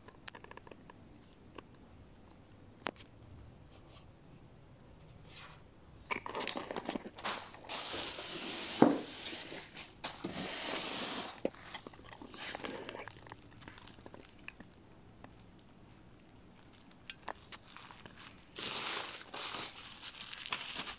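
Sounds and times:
plastic packaging crinkling: 6.2s - 14.8s, 15.5s - 20.9s.

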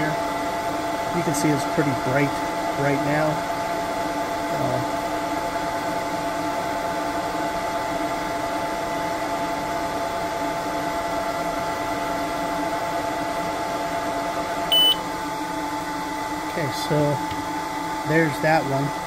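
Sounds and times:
laser engraver humming: 14.7s - 15.4s.

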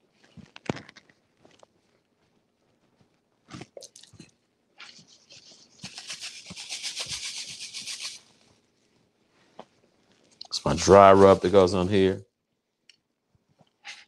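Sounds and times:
seasoning shaken from bag: 4.8s - 8.3s.

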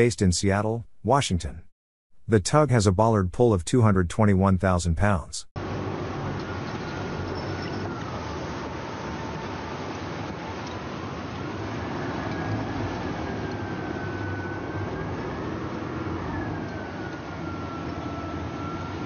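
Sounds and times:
low engine drone: 5.6s - 19.0s.

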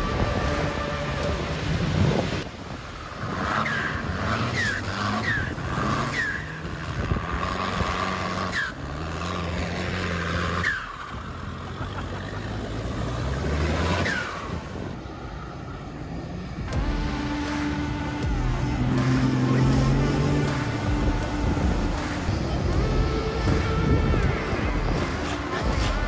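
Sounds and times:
truck engines revving: 0.0s - 26.0s.

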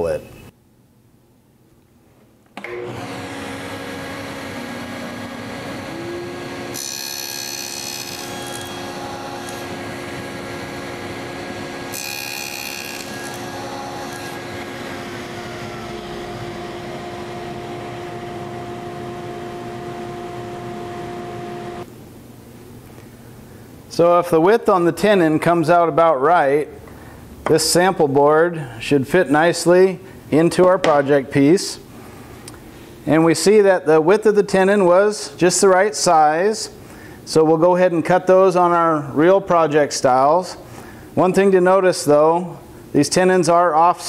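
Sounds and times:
table saw motor running: 2.6s - 21.9s.

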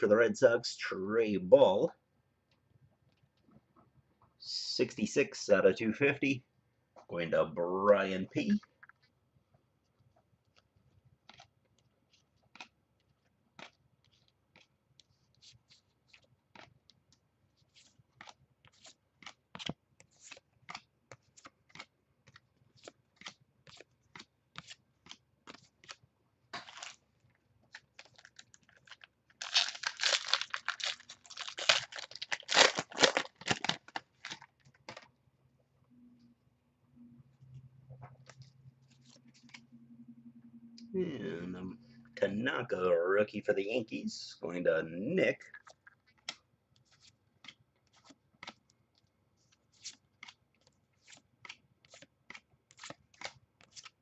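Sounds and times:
card pack wrapper crinkling: 26.6s - 27.1s, 27.7s - 35.1s.

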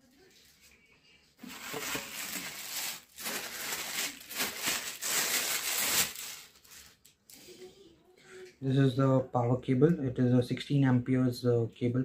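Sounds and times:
plastic packaging crinkling: 1.4s - 7.2s.

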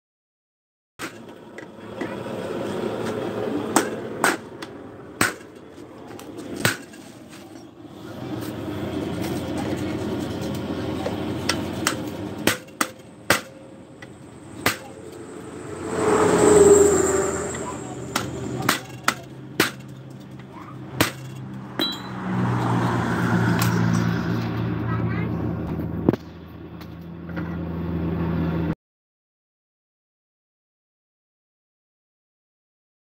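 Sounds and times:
workshop background noise: 1.0s - 22.8s
hammer striking metal disc: 11.8s - 13.6s, 21.0s - 22.2s.

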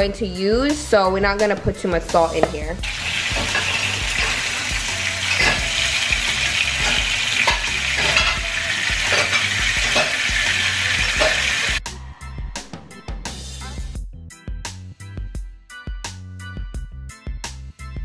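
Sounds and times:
fish frying in hot oil: 2.8s - 11.8s.

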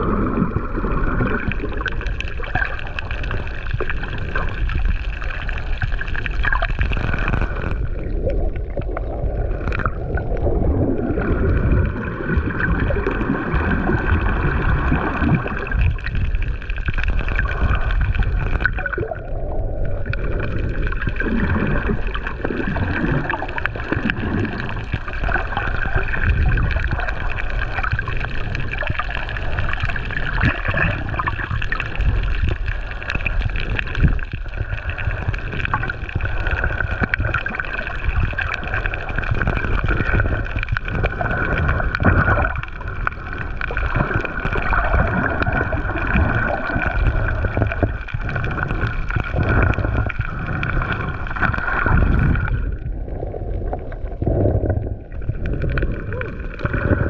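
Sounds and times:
muffled underwater water rumble: 0.0s - 57.0s.

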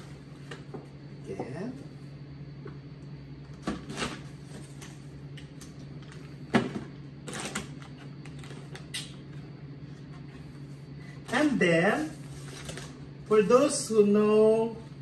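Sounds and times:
plastic items knocking in a box: 6.5s - 8.6s.

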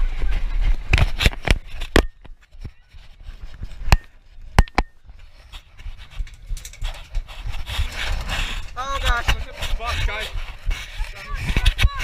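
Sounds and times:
rustling of gear: 1.0s - 10.6s.

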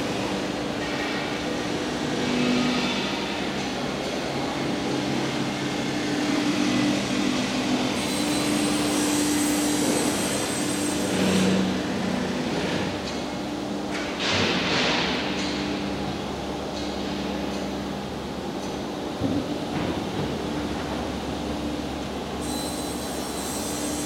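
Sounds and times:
factory machinery hum: 0.0s - 24.0s.

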